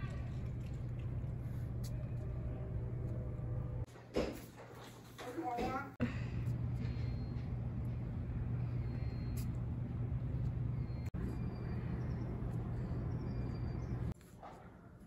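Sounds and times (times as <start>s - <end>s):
low-pitched outdoor hum: 0.0s - 5.3s, 5.9s - 15.0s.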